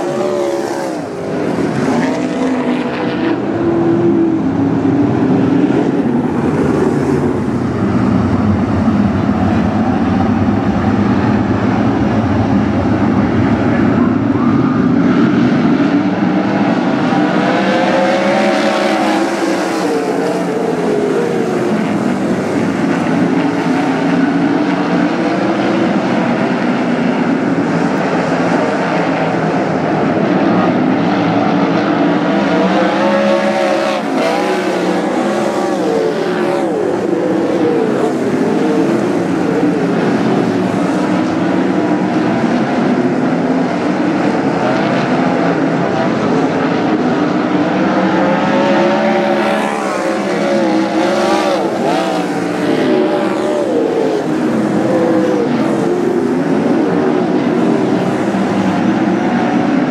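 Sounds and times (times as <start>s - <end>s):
race car engines passing by: 0.0s - 59.9s.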